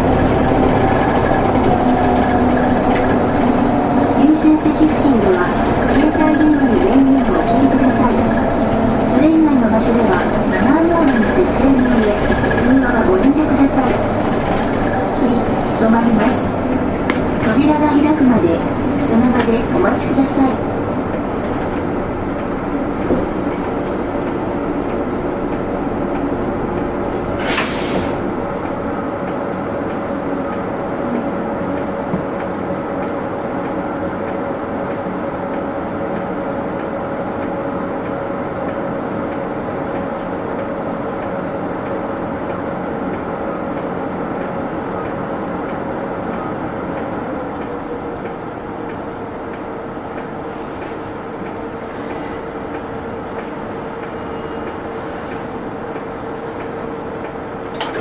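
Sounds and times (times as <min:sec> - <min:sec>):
road noise: 0:00.0 - 0:33.9
bus engine humming: 0:00.0 - 0:58.0.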